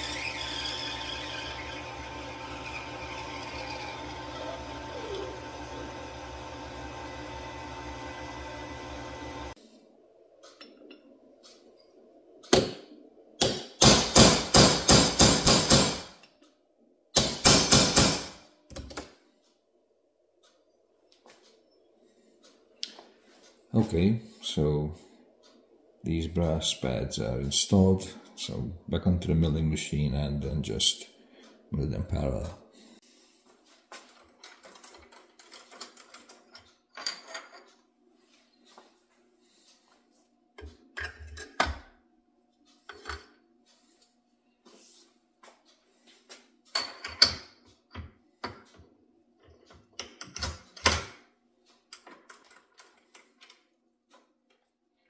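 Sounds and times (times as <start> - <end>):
metal clicks and knocks: 34.1 - 37.8, 51.9 - 54.7.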